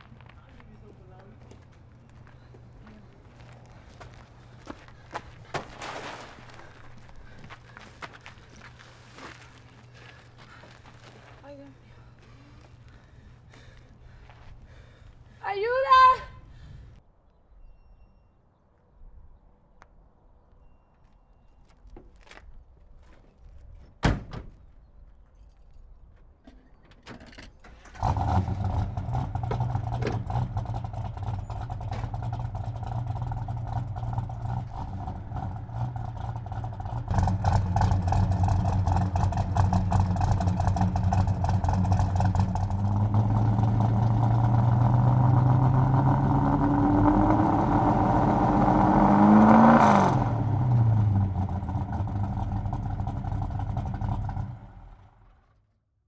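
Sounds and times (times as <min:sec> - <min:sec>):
tyres on gravel: 0:00.0 - 0:16.1, 0:21.0 - 0:49.8
car door slamming: 0:24.0 - 0:24.6
car engine revving: 0:27.9 - 0:55.2.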